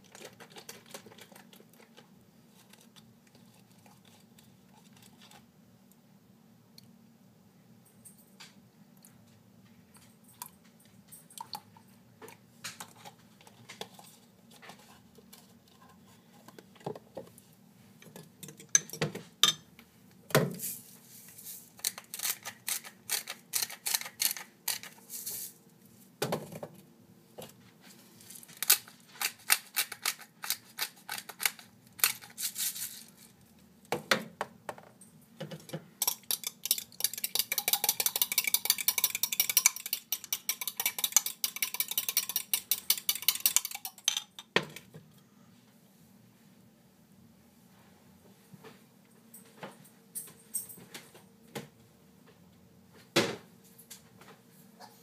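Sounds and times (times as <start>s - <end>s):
metal spoon clinking against glass: 36.0s - 44.4s.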